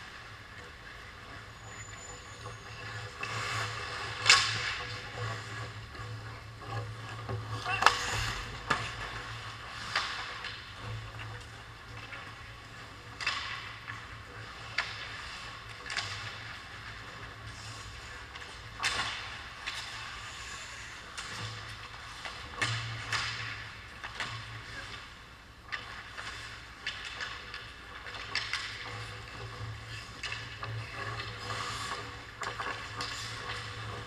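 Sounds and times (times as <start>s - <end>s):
hockey sticks and puck clacking: 0.0s - 34.0s
skate blades scraping ice: 0.0s - 34.0s.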